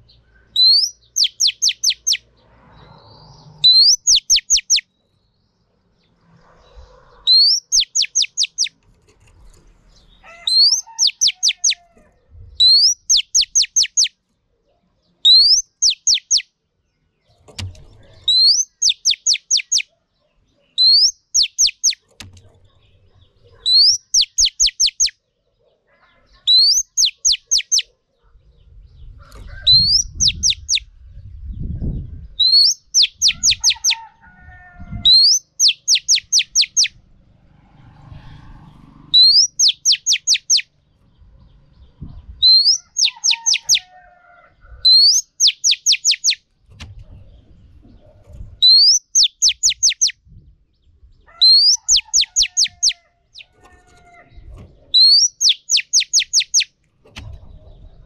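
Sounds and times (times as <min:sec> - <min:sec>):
bird calling: 0:00.0 - 0:02.2, 0:03.0 - 0:04.9, 0:06.6 - 0:08.8, 0:10.1 - 0:12.0, 0:12.6 - 0:14.1, 0:15.3 - 0:16.4, 0:18.2 - 0:19.9, 0:20.8 - 0:22.2, 0:23.5 - 0:25.1, 0:26.4 - 0:28.0, 0:29.2 - 0:30.8, 0:32.4 - 0:34.1, 0:35.1 - 0:37.0, 0:39.2 - 0:40.7, 0:42.4 - 0:43.9, 0:44.8 - 0:46.4, 0:48.6 - 0:50.2, 0:51.3 - 0:56.7.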